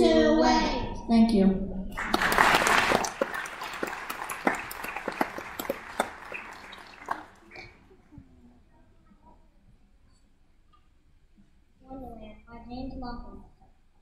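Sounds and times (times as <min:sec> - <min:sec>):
audience applause: 0:02.0 - 0:08.0.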